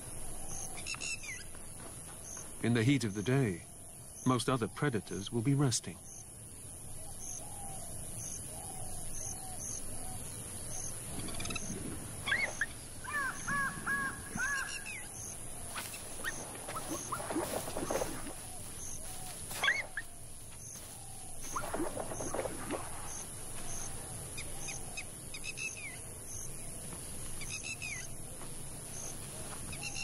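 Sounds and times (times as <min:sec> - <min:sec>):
birds calling: 0:00.0 - 0:30.0
insect drone: 0:00.0 - 0:30.0
faint regular chirp: 0:10.7 - 0:26.6.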